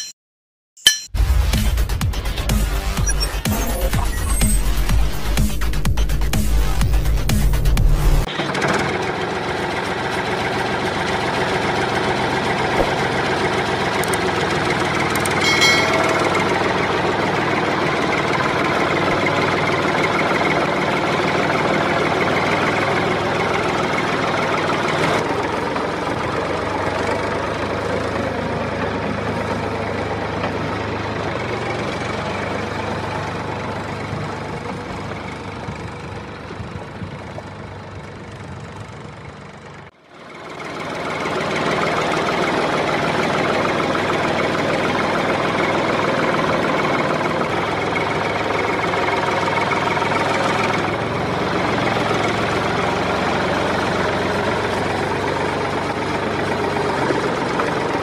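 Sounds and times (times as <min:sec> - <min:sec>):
diesel tractor engine knocking: 0:05.7 - 0:58.0
short higher tone: 0:15.3 - 0:17.2.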